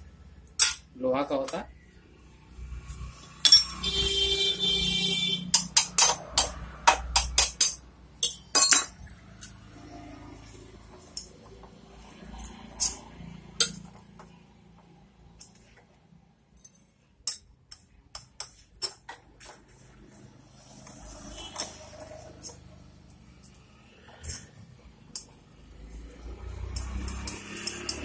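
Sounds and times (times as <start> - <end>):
small metal parts clinking: 3.2 - 3.8, 5.5 - 9.6, 12.2 - 14.0, 15.4 - 15.8, 16.5 - 19.6, 21.6 - 22.7, 26.5 - 28.0.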